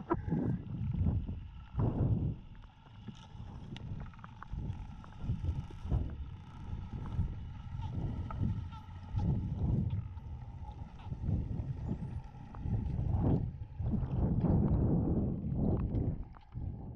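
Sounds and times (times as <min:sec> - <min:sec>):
faint steady hum: 0:00.0 - 0:16.9.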